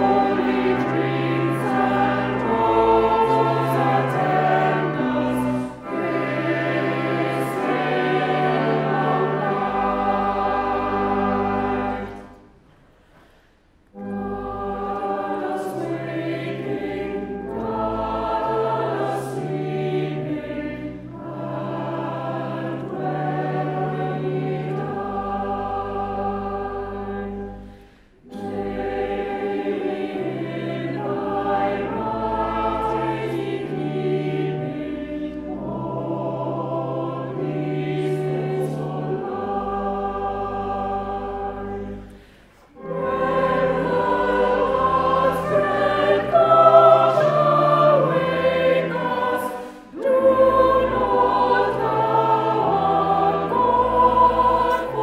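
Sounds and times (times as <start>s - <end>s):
choir singing a hymn: 0.0s - 12.6s, 13.3s - 55.0s
pipe organ: 0.0s - 12.6s, 13.9s - 55.0s.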